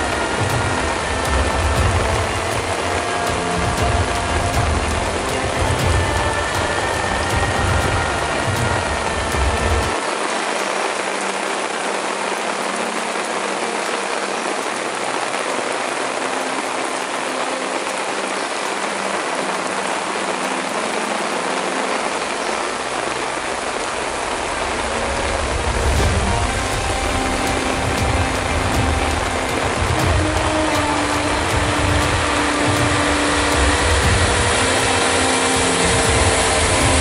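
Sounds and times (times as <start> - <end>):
low rumble: 0.0 - 10.0, 24.2 - 37.0
heavy rain on road and truck: 0.0 - 37.0.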